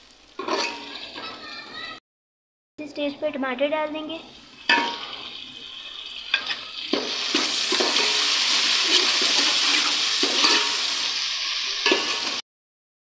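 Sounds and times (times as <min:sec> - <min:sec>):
tomatoes sizzling in oil: 0:00.0 - 0:02.0, 0:02.9 - 0:12.4
steel ladle scraping pot: 0:06.3 - 0:11.0, 0:11.8 - 0:12.4.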